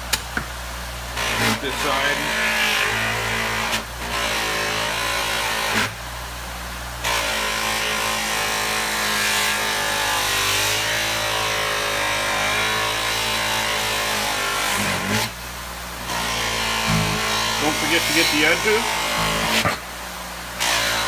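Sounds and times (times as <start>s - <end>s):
bench buffer humming: 16.0s - 21.0s.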